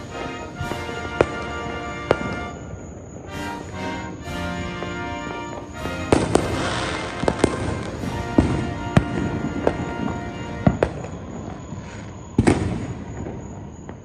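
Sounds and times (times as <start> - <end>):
fireworks bangs: 0.0 - 14.0.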